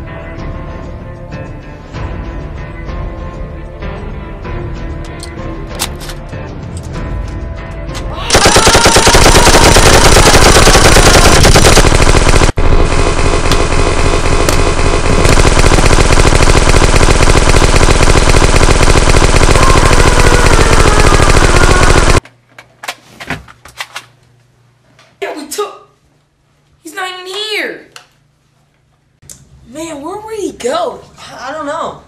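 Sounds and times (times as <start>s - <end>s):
automatic machine-gun fire: 8.3s - 22.2s.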